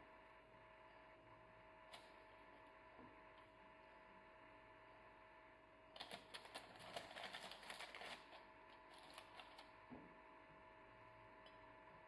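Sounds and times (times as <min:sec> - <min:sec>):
baking paper crackling: 0:06.0 - 0:09.8.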